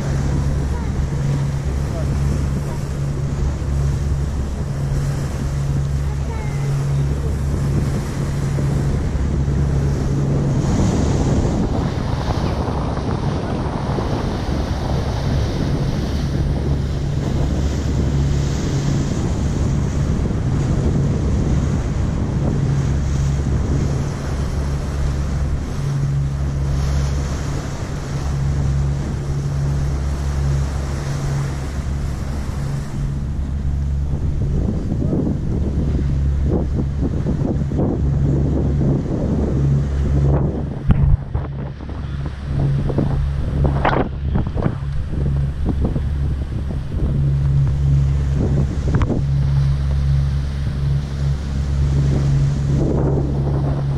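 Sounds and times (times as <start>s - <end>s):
water rushing along hull: 0.0s - 53.9s
wind gusting on microphone: 0.0s - 53.9s.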